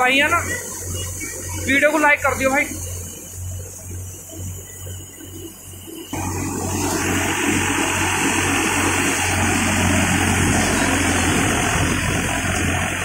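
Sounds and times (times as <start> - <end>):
tractor engine and thresher drone: 0.0 - 13.0
rushing straw and grain: 6.0 - 13.0.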